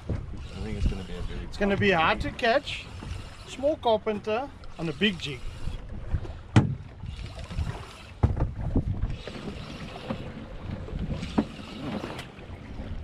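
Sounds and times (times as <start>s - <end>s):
wind buffeting microphone: 0.0s - 3.8s, 5.1s - 13.0s
sharp knocks: 6.5s - 6.9s.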